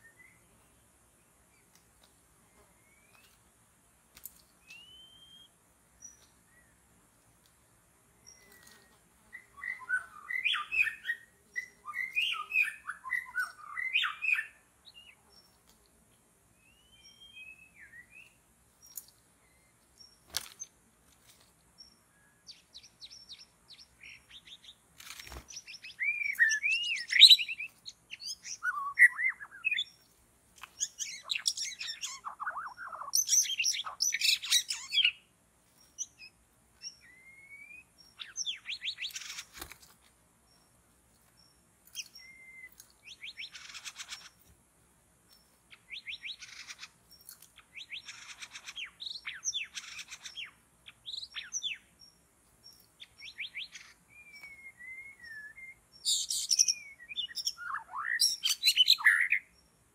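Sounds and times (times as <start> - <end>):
bird singing whistled phrases: 4.6 - 5.5, 9.4 - 15.1, 16.6 - 18.3, 25.6 - 29.9, 30.8 - 35.2, 37.0 - 39.4, 42.2 - 44.2, 53.1 - 59.5.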